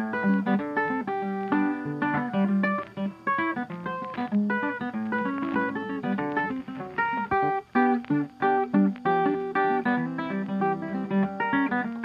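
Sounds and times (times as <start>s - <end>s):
plucked acoustic guitar: 0.0s - 12.0s.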